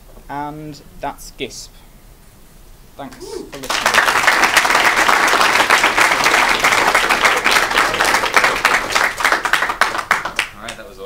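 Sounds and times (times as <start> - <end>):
audience applauding: 3.5 - 10.8.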